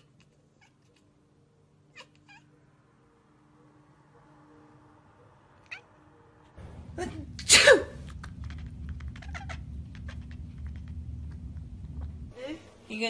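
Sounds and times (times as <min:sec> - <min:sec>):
cat chirping: 0:01.9 - 0:02.6, 0:05.6 - 0:06.1, 0:08.0 - 0:11.4
cat sneezing: 0:07.2 - 0:08.2.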